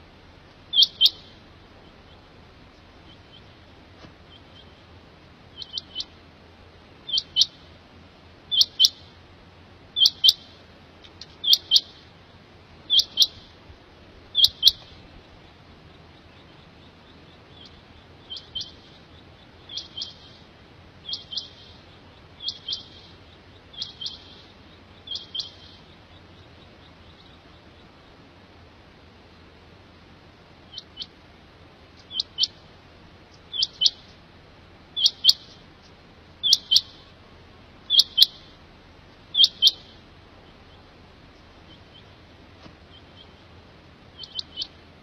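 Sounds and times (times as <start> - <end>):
quail calling: 0.6 - 4.9, 5.5 - 6.2, 7.0 - 7.7, 8.5 - 9.1, 10.0 - 10.6, 11.2 - 12.1, 12.9 - 13.6, 14.3 - 28.2, 30.7 - 31.2, 32.0 - 32.7, 33.3 - 34.2, 34.9 - 37.2, 37.8 - 38.6, 39.2 - 42.2, 42.8 - 44.9.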